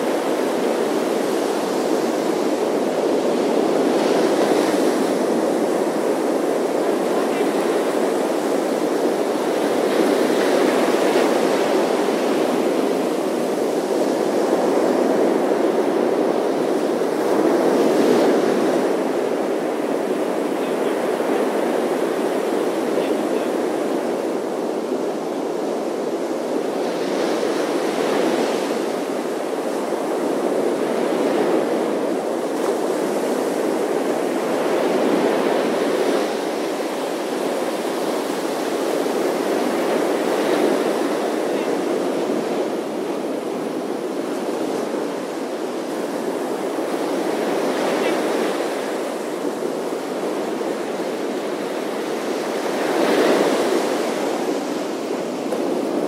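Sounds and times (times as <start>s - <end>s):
ocean surf breaking on beach: 0.0s - 56.0s.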